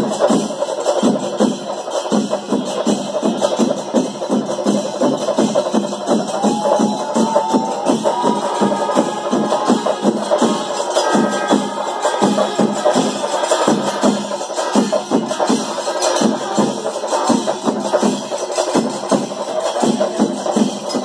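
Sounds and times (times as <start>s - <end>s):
cymbals: 0.0s - 21.0s
drums struck in steady rhythm: 0.0s - 21.0s
held high note: 6.2s - 14.7s.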